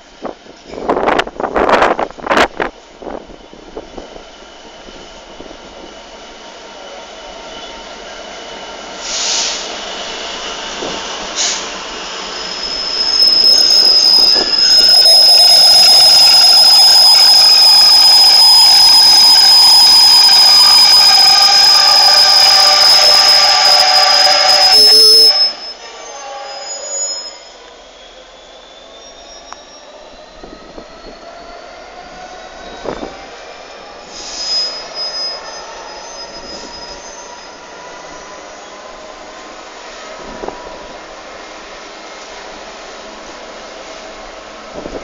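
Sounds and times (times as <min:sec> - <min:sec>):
diesel locomotives passing: 0:00.1 - 0:28.4
high-pitched wheel squeal: 0:11.0 - 0:38.8.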